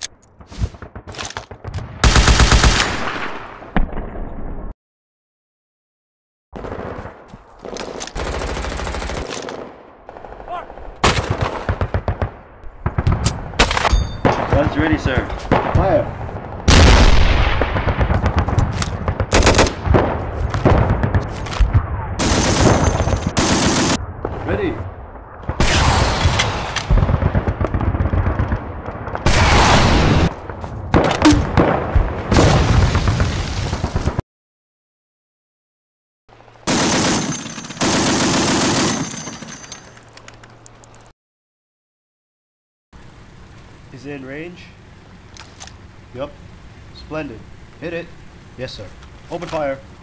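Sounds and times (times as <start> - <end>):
machine-gun fire: 2.0 - 3.2, 16.7 - 21.2, 22.2 - 24.0, 36.7 - 39.0
gunfire: 16.7 - 24.0.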